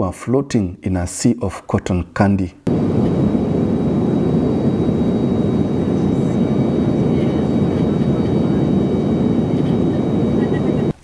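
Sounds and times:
faint high whine: 2.7s - 11.0s
jet engines and airflow rushing: 2.7s - 11.0s.

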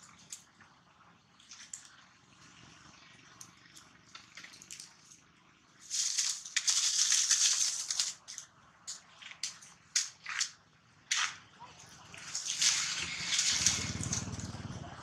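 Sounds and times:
dry leaves crunching and rustling: 5.8s - 8.4s, 12.2s - 14.6s.

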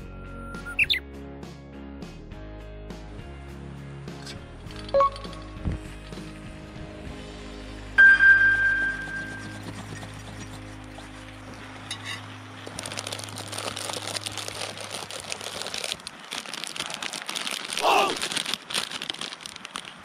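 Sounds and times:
background music: 0.0s - 14.9s
plastic packet crinkling: 12.6s - 20.0s.

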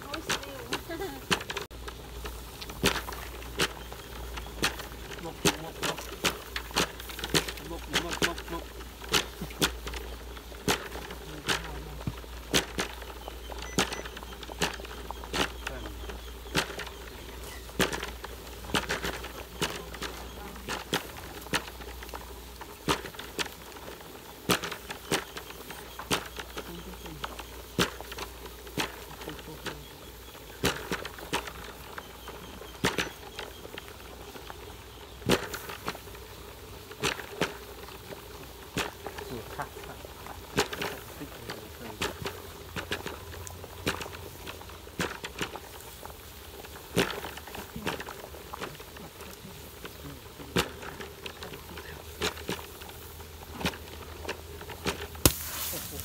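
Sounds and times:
fire crackling and popping: 0.0s - 56.0s
water boiling hard in a wok: 35.5s - 56.0s.

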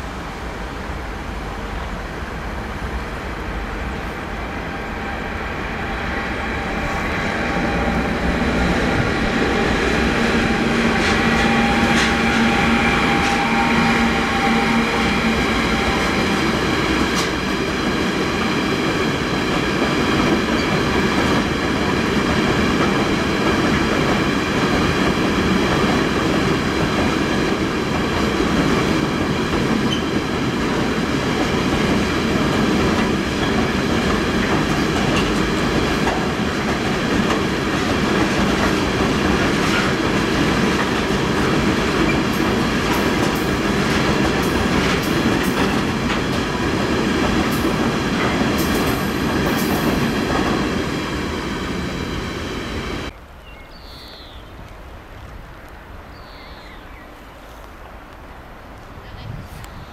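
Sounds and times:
freight train rolling past: 0.0s - 53.2s
high wheel squeals: 4.6s - 16.4s.

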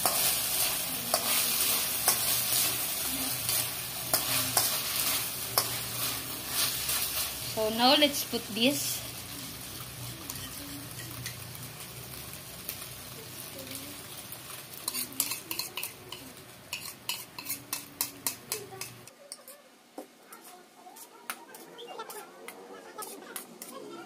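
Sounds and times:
chicken sizzling in a wok: 0.0s - 19.1s.

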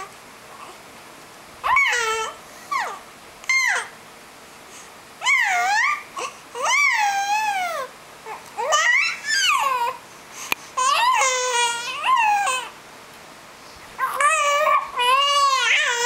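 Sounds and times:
infant babbling and cooing: 1.7s - 3.9s, 5.2s - 10.0s, 10.8s - 12.8s, 14.0s - 16.0s.

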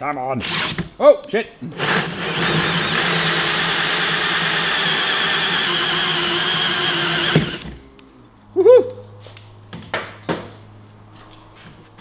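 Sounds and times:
hole saw grinding plastic: 1.7s - 7.8s
electric drill whining: 1.8s - 7.8s.

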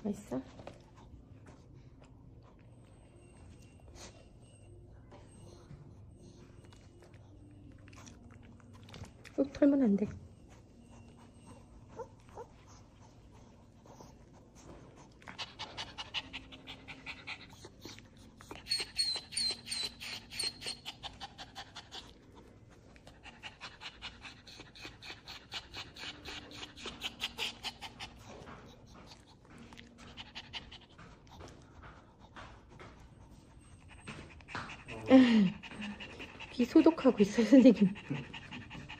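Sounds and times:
small dog panting: 10.2s - 38.9s.

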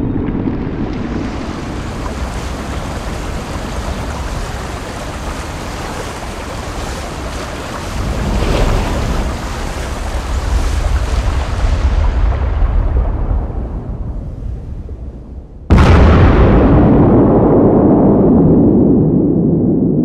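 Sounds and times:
waves rushing: 0.0s - 16.0s.

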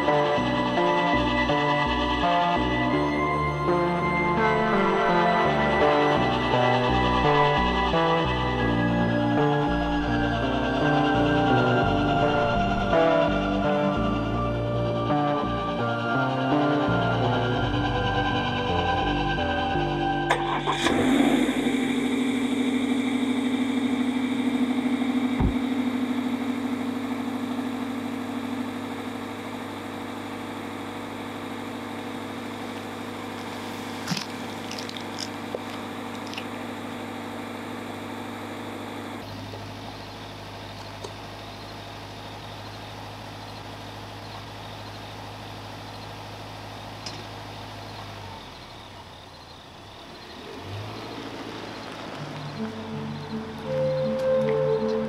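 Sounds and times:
car engine idling: 0.0s - 55.0s
footsteps on asphalt: 25.4s - 25.7s, 32.7s - 36.6s, 51.2s - 52.9s.

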